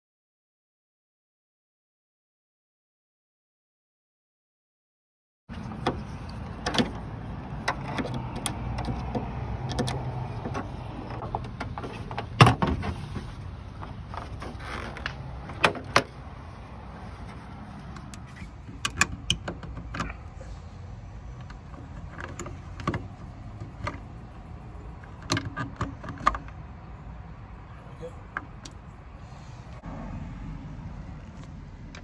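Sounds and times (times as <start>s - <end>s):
plastic trim panel clicks and knocks: 5.7s - 12.9s, 18.0s - 20.1s.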